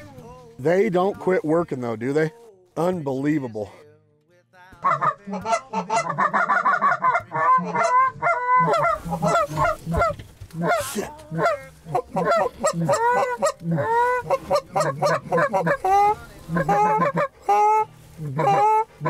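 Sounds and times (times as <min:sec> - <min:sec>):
goose call honks and clucks: 0:04.8 - 0:19.0.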